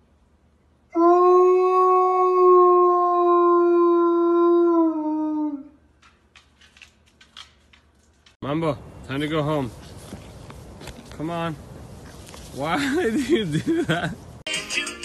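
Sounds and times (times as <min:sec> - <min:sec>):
dog howling: 0:00.9 - 0:05.8.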